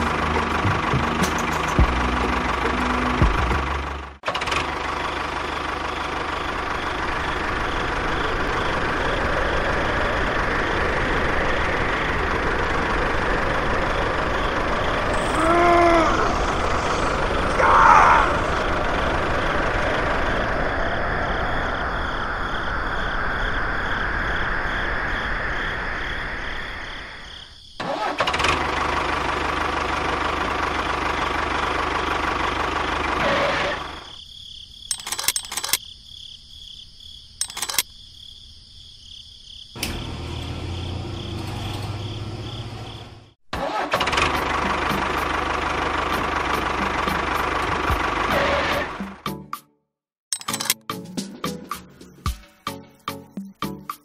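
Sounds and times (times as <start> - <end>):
model tractor engine running: 34.9 - 35.8, 37.4 - 37.8
sharp clicks: 34.9 - 35.8, 37.4 - 37.9, 50.3 - 50.8.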